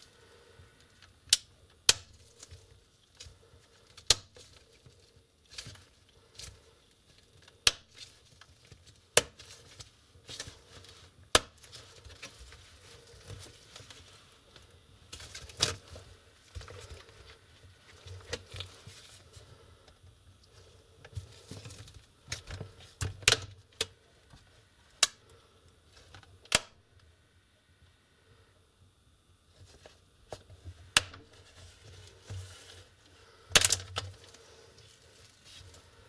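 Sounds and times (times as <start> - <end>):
plastic clips clicking and snapping: 33.5 - 34.2.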